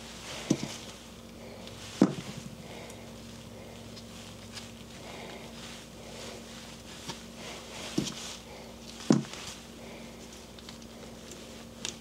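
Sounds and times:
faint steady hum: 0.0s - 12.0s
dull knocks on workbench: 2.0s - 2.3s, 9.1s - 9.3s
light clicks of metal parts: 10.3s - 12.0s.

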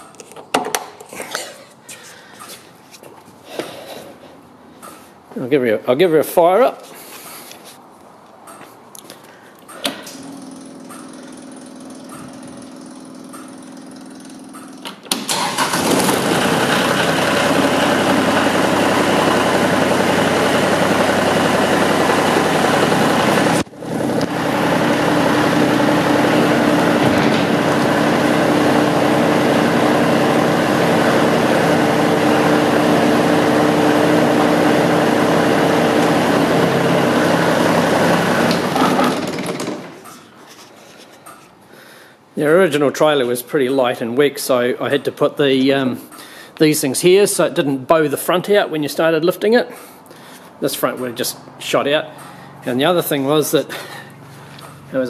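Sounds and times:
tractor diesel engine running: 10.2s - 40.1s.

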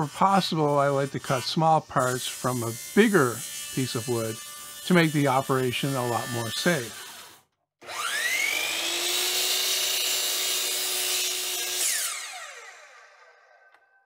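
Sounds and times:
saw blade cutting wood: 0.0s - 13.9s
miter saw motor whine: 5.8s - 14.0s.

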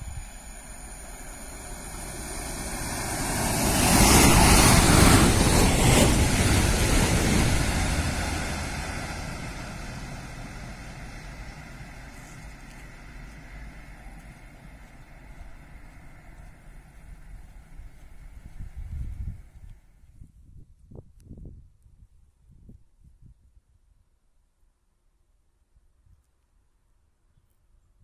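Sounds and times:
electric train passing: 0.0s - 20.0s.

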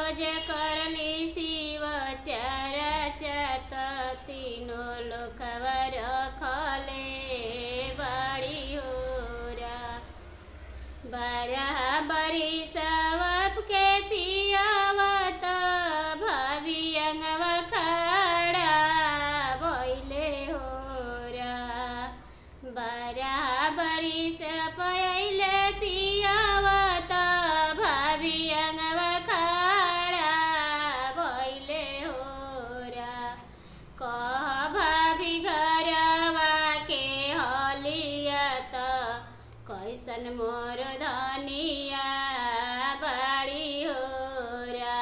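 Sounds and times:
woman singing solo: 0.0s - 10.1s.

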